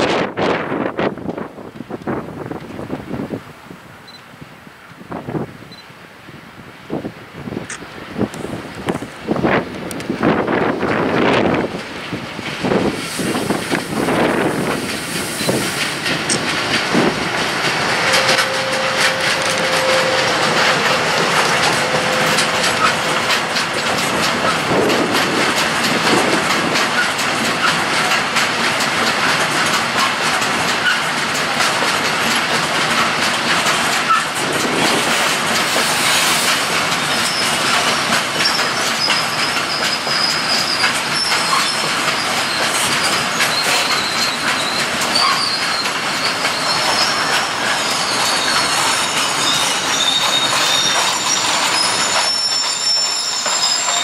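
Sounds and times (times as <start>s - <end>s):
clickety-clack over rail joints: 0.0s - 3.5s, 6.9s - 54.0s
train wheels rumbling on rail: 0.0s - 54.0s
high wheel squeal: 18.0s - 23.4s, 37.0s - 37.8s, 38.4s - 54.0s.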